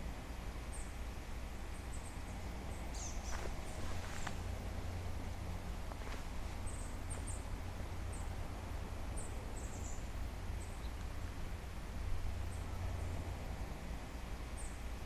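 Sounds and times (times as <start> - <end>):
background hiss: 0.0 - 15.0
steady low rumble: 0.0 - 15.0
songbird chip calls: 1.7 - 4.3, 9.2 - 11.2.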